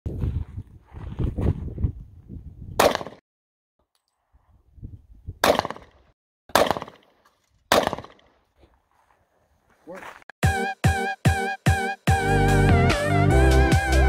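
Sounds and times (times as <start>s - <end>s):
wind buffeting microphone: 0.1s - 2.8s, 4.4s - 5.4s
handgun shots: 2.8s - 3.2s, 5.4s - 5.9s, 6.5s - 7.1s, 7.7s - 8.3s.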